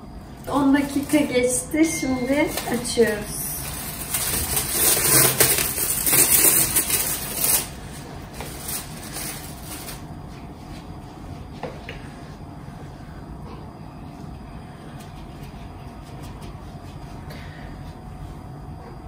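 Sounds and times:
cling film crinkling: 2.2s - 10.0s.

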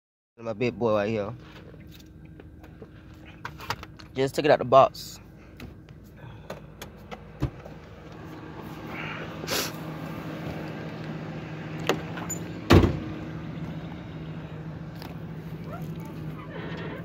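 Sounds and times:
steady low hum: 0.4s - 17.0s
car door shutting: 11.8s - 13.2s, 15.6s - 17.0s.

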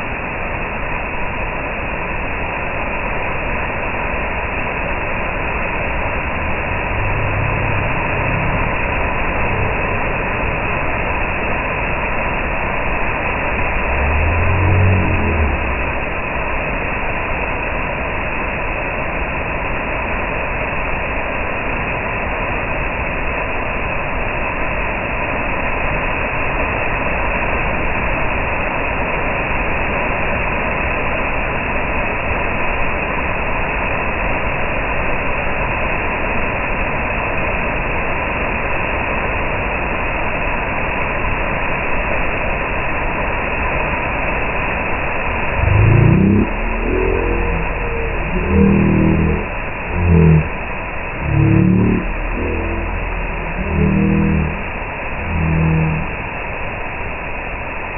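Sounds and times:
waterfall rushing water: 3.2s - 19.4s.

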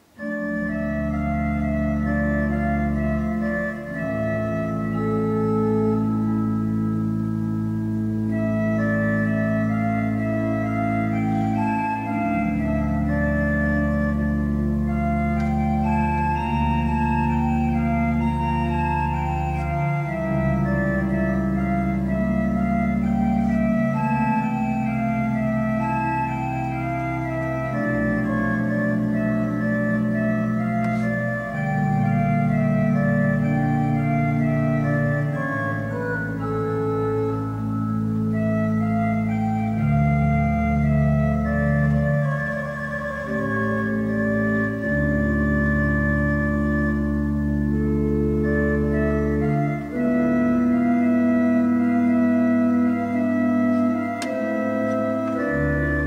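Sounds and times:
organ playing slow chords: 0.0s - 56.0s.

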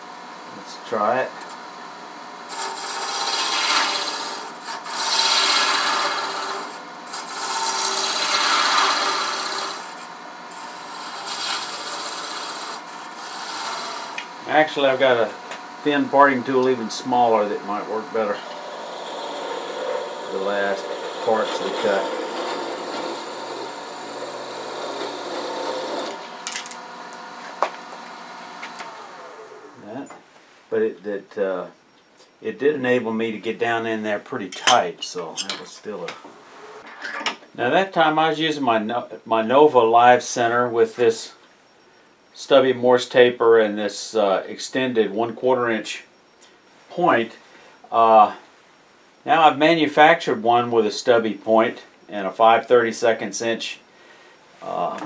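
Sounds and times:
parting tool scraping wood on lathe: 2.5s - 14.3s, 16.5s - 26.3s.

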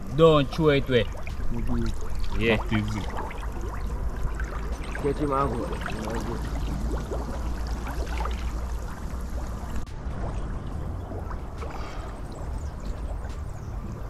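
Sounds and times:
steady low rumble: 0.0s - 14.0s
water sloshing and splashing: 0.0s - 14.0s.

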